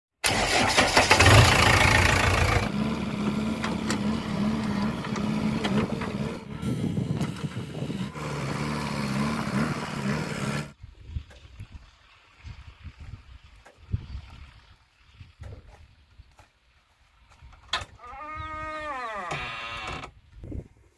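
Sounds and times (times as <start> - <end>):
diesel engine starting and running: 0.2 - 10.8.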